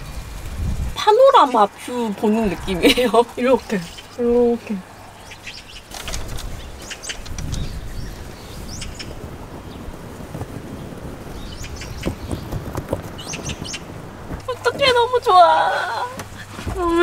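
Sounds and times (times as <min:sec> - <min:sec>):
wind on microphone: 0:00.0 - 0:17.0
high bird chirps: 0:03.6 - 0:04.3, 0:13.2 - 0:13.9.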